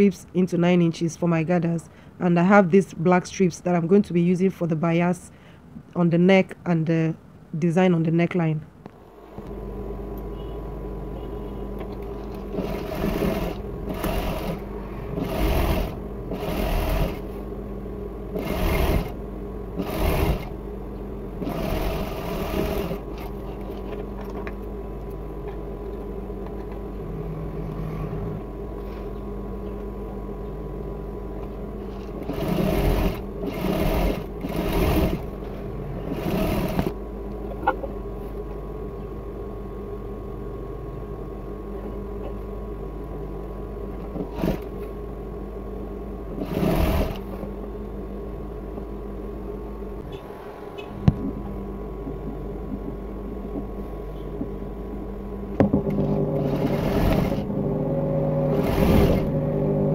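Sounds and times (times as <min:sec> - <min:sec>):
steady hum: 0:00.0 - 0:59.9
sewing machine stitching: 0:11.8 - 0:17.4, 0:18.3 - 0:19.2, 0:19.8 - 0:20.6, 0:21.4 - 0:24.0, 0:31.9 - 0:37.0, 0:44.0 - 0:44.8, 0:46.3 - 0:47.5, 0:55.9 - 0:57.5, 0:58.5 - 0:59.4.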